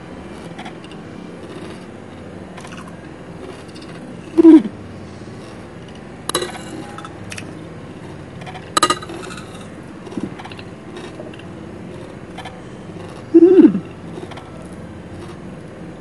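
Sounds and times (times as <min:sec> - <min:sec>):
cutlery clinking on a plate: 0:06.3 - 0:07.2, 0:08.4 - 0:10.3.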